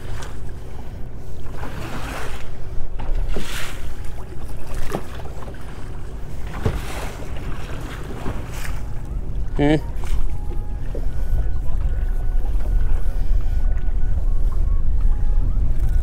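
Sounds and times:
waves splashing against boat hull: 0:00.0 - 0:16.0
wind rumbling on microphone: 0:00.0 - 0:16.0
light knocks on hull: 0:03.0 - 0:09.1.

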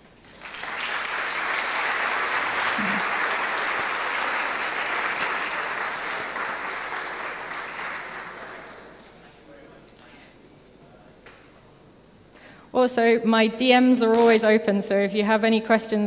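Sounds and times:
audience applauding: 0:00.0 - 0:09.2.

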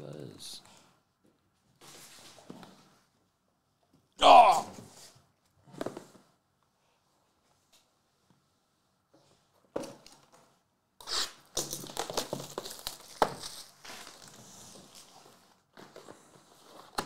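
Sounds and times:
plastic wrap tearing and crinkling: 0:11.0 - 0:15.2.

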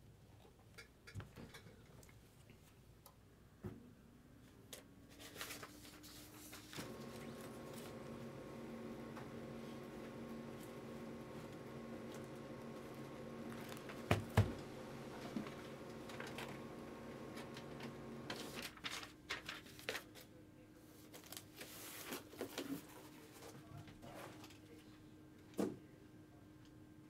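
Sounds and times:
faint steady hum: 0:05.6 - 0:21.4.

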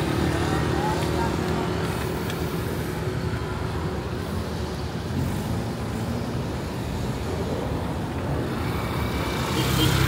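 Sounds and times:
cars passing: 0:00.0 - 0:10.0.

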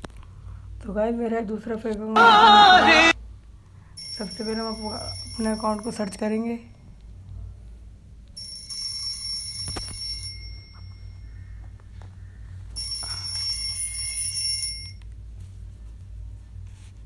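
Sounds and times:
ringer sounding: 0:02.2 - 0:03.2.

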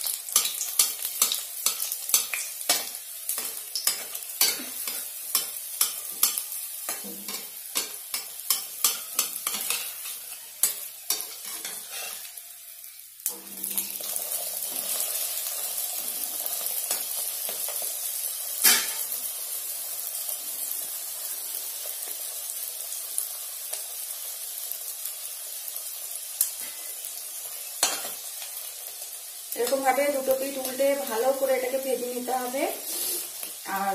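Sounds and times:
flatbread sizzling in oil: 0:00.0 - 0:33.9
metal spatula scraping pan: 0:03.4 - 0:12.3.

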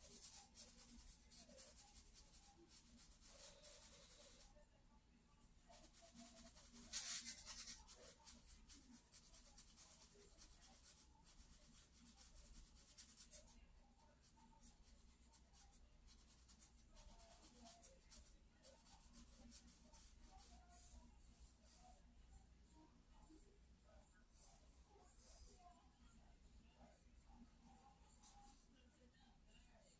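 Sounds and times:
charcoal scratching on paper: 0:00.0 - 0:04.6, 0:05.7 - 0:22.0.

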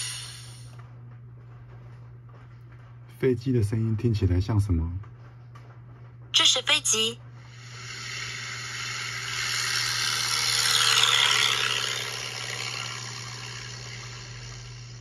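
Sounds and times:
airplane passing overhead: 0:07.5 - 0:15.0.

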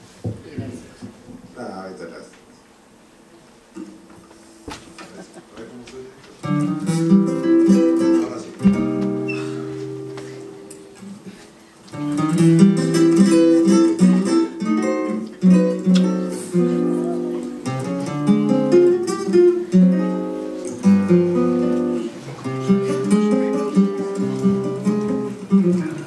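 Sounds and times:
solo acoustic guitar: 0:06.4 - 0:26.0.

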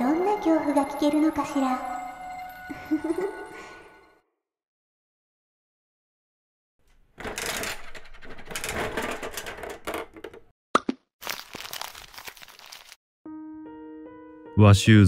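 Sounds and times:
rustling handling noise: 0:11.2 - 0:13.0.

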